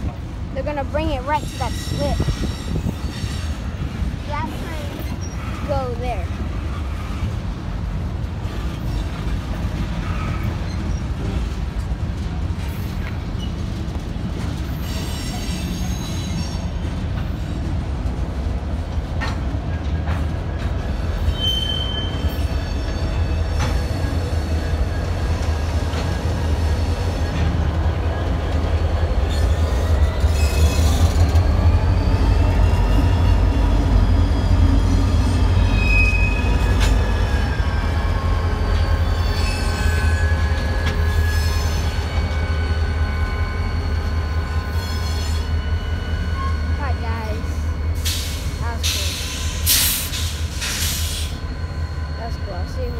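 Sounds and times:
freight train rolling past: 0.0s - 52.9s
wheel squeals: 14.6s - 16.8s, 20.9s - 27.6s, 29.2s - 46.7s.

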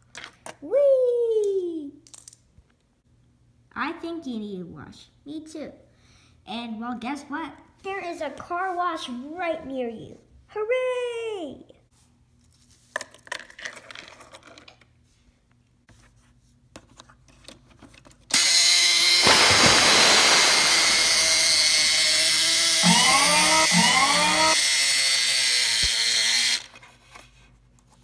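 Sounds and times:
small electric motor running: 18.3s - 26.8s
short rising tones: 19.1s - 25.9s.

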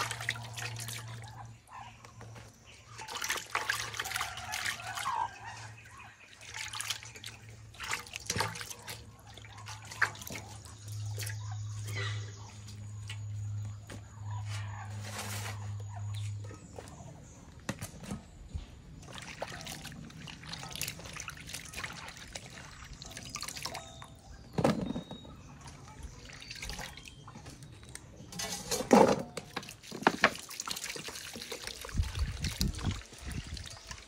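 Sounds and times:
water splashing in a metal basin: 0.0s - 14.5s, 17.7s - 34.0s
water pouring from a bottle: 26.2s - 34.0s.

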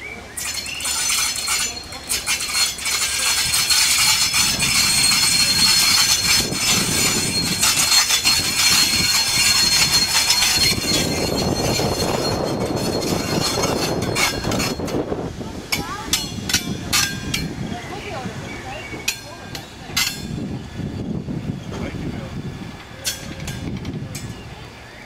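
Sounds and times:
wheel squeal: 0.0s - 15.1s
diesel locomotive engine rumble: 0.0s - 25.0s
clicking train wheels: 0.4s - 17.6s, 18.9s - 20.4s.

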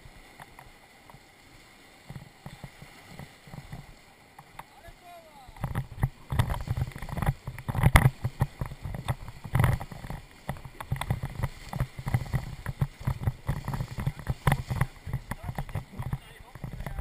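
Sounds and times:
rushing splashing water: 0.0s - 17.0s
raft knocks and thumps: 5.6s - 17.0s.

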